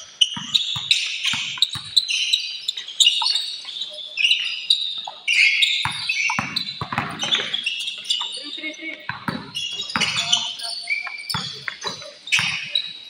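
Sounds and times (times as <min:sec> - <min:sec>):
basketball bouncing: 0:00.0 - 0:02.1, 0:05.8 - 0:08.3, 0:09.0 - 0:13.0
sneakers squeaking on court: 0:00.0 - 0:13.0.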